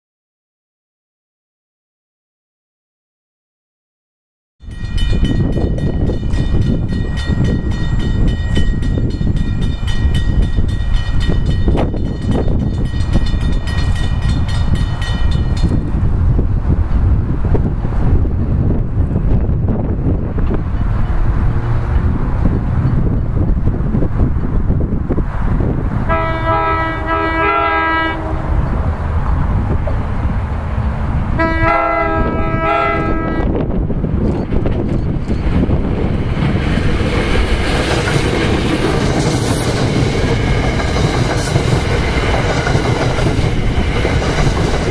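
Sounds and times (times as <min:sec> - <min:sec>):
crossing warning bell ringing: 0:04.6 - 0:15.9
wind rumble on microphone: 0:04.6 - 0:44.9
train chord horn blasts: 0:26.1 - 0:28.6, 0:31.3 - 0:33.6.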